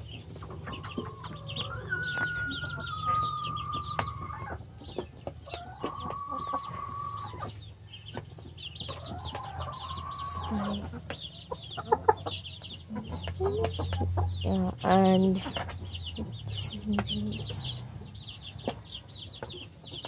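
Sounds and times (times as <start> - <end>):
long drawn-out chicken calls: 0.0 - 14.3
chickens clucking: 0.0 - 20.0
high falling chirps: 1.0 - 4.6.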